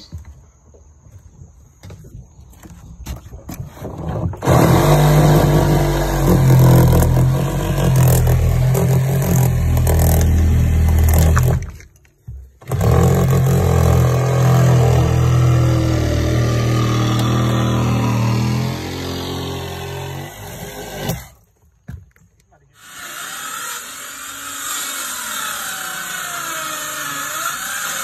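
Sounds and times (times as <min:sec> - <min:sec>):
power saw cutting fiberglass: 0:03.7 - 0:11.8, 0:12.6 - 0:21.4, 0:22.8 - 0:28.0.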